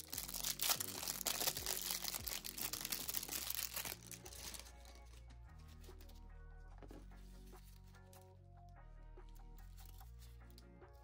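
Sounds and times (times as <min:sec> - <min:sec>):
packaging crinkling: 0:00.0 - 0:05.1
soft background music: 0:00.0 - 0:11.0.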